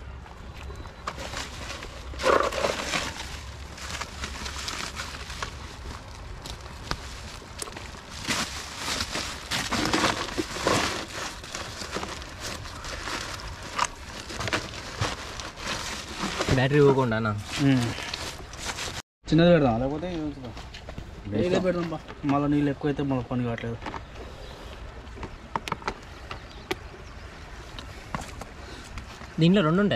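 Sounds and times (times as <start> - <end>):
plastic sack rustling and crinkling: 0.7 - 19.0.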